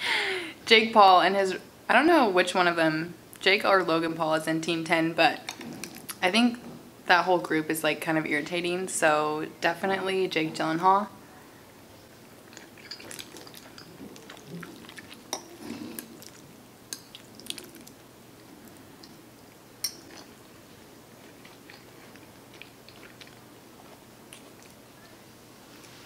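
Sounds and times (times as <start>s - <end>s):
soft chewing: 11.9s - 26.0s.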